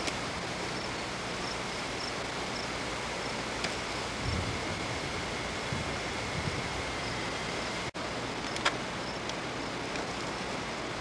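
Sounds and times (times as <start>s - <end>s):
wind hiss on microphone: 0.0s - 11.0s
wind gust buffeting microphone: 1.9s - 7.9s.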